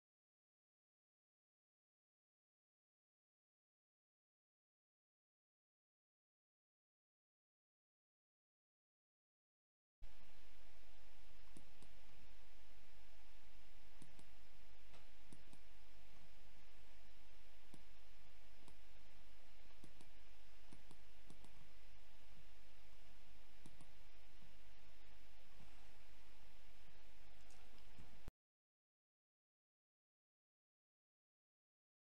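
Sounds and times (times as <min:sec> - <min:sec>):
low hum and hiss: 0:10.0 - 0:28.3
computer mouse clicking: 0:11.5 - 0:12.0, 0:14.0 - 0:15.7, 0:17.7 - 0:17.9, 0:18.6 - 0:18.8, 0:19.7 - 0:21.6, 0:23.6 - 0:24.0, 0:27.3 - 0:28.1.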